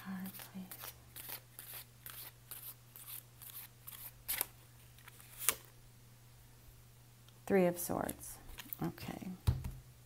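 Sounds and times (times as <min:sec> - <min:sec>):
cards shuffling: 0:00.1 - 0:05.7.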